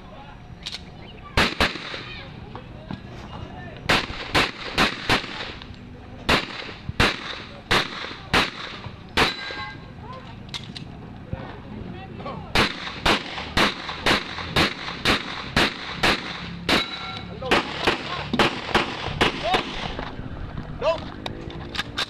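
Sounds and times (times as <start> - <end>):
pistol shots: 1.4 - 2.1, 3.9 - 5.6, 6.3 - 9.7, 12.5 - 20.0.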